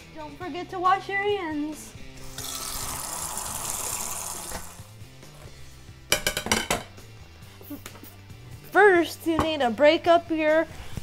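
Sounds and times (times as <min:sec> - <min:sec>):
faint background music: 0:00.0 - 0:11.0
tap water running into sink: 0:02.4 - 0:04.8.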